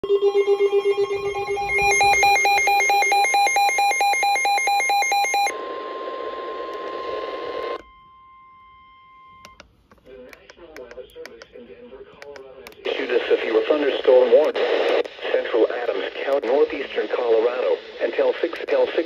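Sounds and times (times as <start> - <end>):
rapid electronic warbling beeps: 0.0 - 5.5
steady warning alert tone: 0.0 - 5.5
radio hiss: 12.8 - 19.0.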